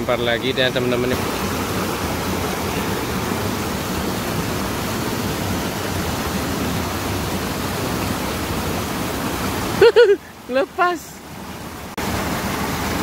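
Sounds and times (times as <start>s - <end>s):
fast-flowing stream rushing: 0.0s - 13.0s.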